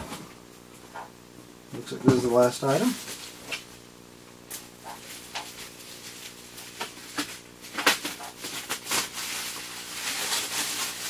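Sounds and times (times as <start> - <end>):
steady low hum: 0.0 - 11.0
bubble wrap crinkling: 2.6 - 3.8, 4.5 - 11.0.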